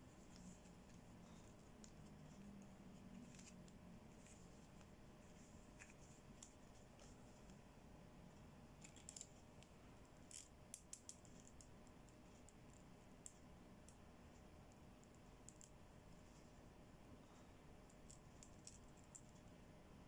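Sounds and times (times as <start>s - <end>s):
plastic bangle bracelets clicking: 10.3s - 11.7s.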